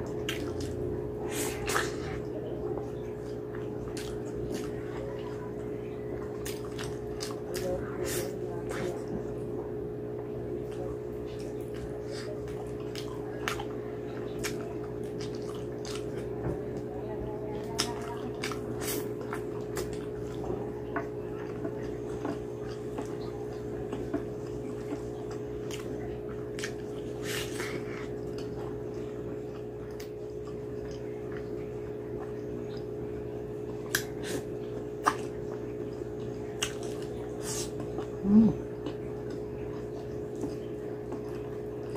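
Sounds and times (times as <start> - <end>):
steady low hum: 0.0 - 41.9
chewing clicks: 10.7 - 16.4, 33.7 - 38.1.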